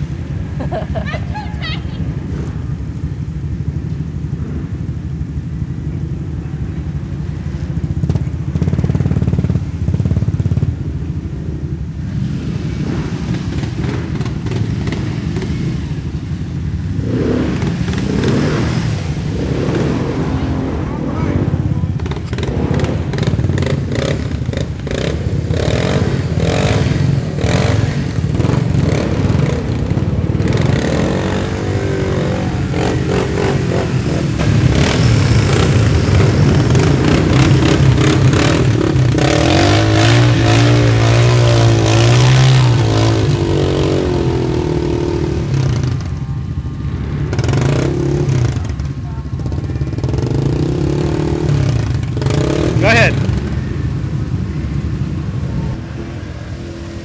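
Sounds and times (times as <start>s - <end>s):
quad engine revving under load: 16.9s - 46.2s, 47.0s - 54.1s.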